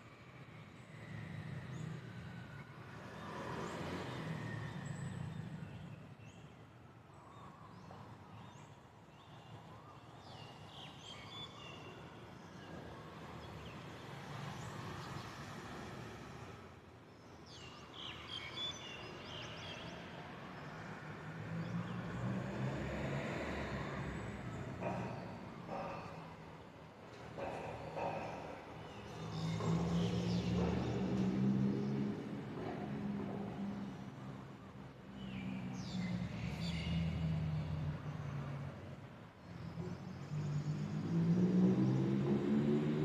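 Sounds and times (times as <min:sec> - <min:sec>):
city traffic rumbling: 0:18.0 - 0:43.0.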